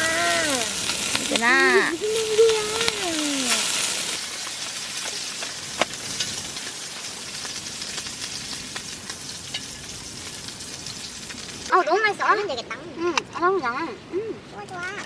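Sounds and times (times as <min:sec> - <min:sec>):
food sizzling in a pan: 0:00.0 - 0:12.1.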